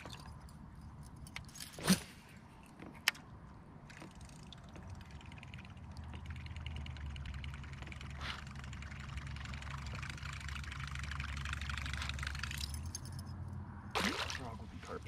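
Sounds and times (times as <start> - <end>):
low steady rumble: 2.4 - 15.0
fishing reel whirring: 3.9 - 13.3.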